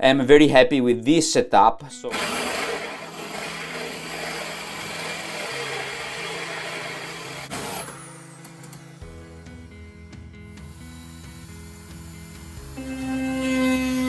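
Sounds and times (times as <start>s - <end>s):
electric drill boring wood: 2.1s - 9.8s, 10.5s - 14.0s.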